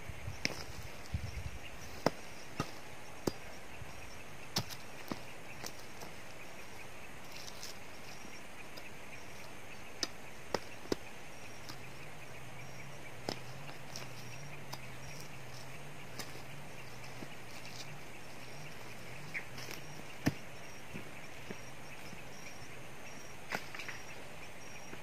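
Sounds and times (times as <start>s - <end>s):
faint low hum: 0.0s - 25.0s
insects buzzing: 0.0s - 25.0s
digging tool striking soil: 1.9s - 3.5s, 4.5s - 6.1s, 10.0s - 11.9s, 13.2s - 18.0s, 18.6s - 21.1s.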